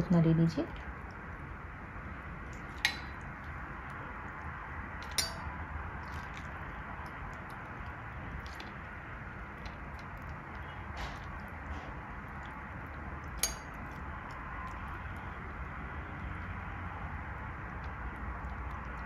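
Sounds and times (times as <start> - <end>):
sharp clink: 5.0 - 5.5.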